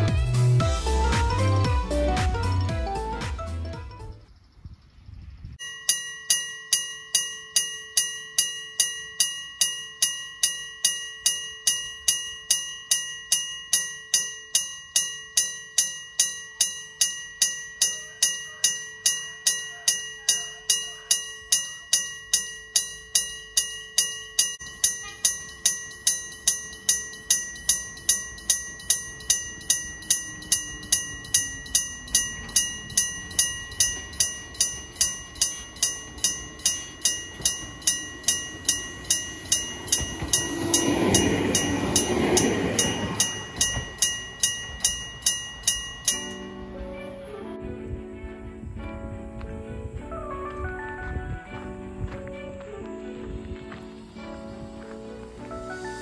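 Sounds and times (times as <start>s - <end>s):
level crossing bell ringing: 5.6s - 46.8s
approaching train rumble: 25.2s - 48.8s.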